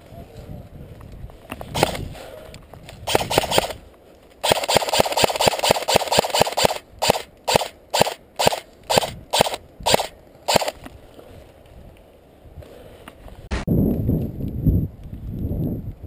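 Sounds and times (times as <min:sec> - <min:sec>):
airsoft rifle firing: 0:01.7 - 0:02.0, 0:03.0 - 0:03.8, 0:04.4 - 0:10.8.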